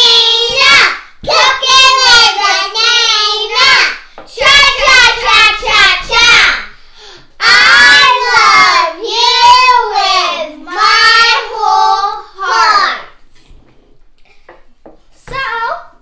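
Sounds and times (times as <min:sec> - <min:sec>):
children singing: 0:00.0 - 0:06.8, 0:07.4 - 0:13.2.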